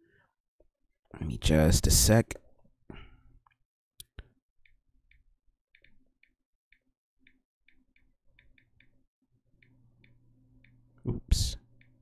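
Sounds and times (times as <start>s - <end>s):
low background hum: 8.4s - 12.0s.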